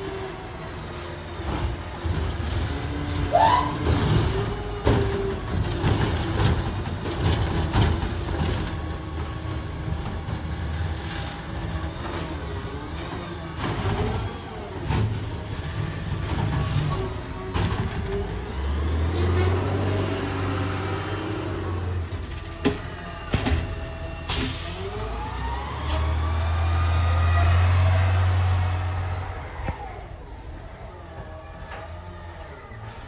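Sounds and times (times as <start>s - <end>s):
garbage truck running: 0.0s - 33.0s
low engine note: 16.3s - 33.0s.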